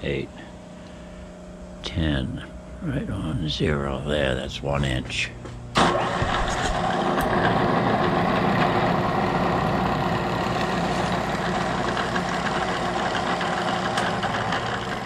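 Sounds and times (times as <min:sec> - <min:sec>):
milling machine drilling steel: 0:06.7 - 0:15.0.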